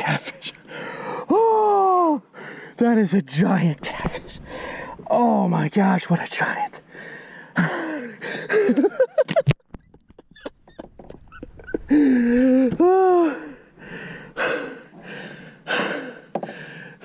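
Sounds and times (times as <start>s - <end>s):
man whooping: 1.3s - 2.2s, 11.9s - 13.6s.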